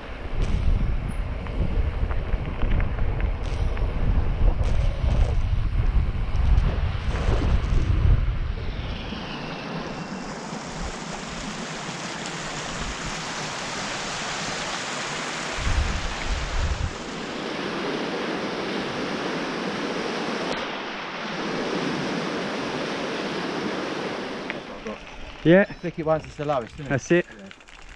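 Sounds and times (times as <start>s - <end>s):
wind buffeting microphone: 0.0s - 11.5s, 15.5s - 20.5s
stream water rushing over stones: 9.8s - 27.2s.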